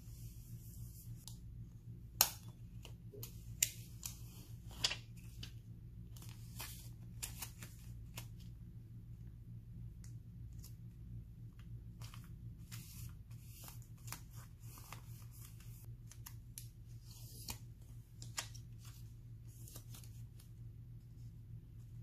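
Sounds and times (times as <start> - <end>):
paper rustling: 3.2 - 8.5.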